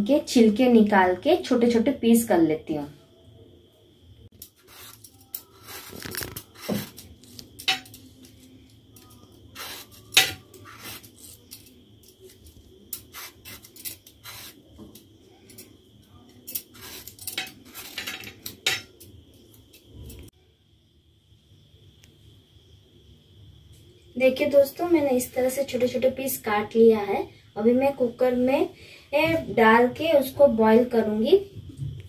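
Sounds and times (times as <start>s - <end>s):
knife scraping mango skin: 4.6s - 7.4s
blade clinking on steel plate: 16.5s - 19.1s.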